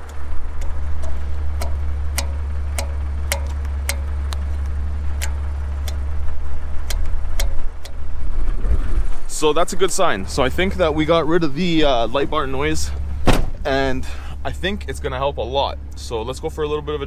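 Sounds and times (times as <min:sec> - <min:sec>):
fingers flicking metal fins: 0:00.0 - 0:08.1
steady low rumble: 0:00.0 - 0:17.0.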